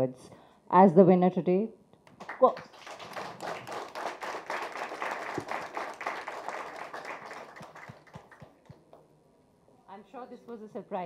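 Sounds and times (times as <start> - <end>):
audience applause: 2.2 - 8.8.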